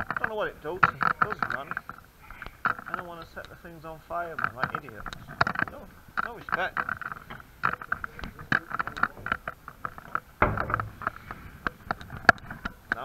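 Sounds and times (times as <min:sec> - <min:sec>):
dull thump: 0:10.4 - 0:12.4.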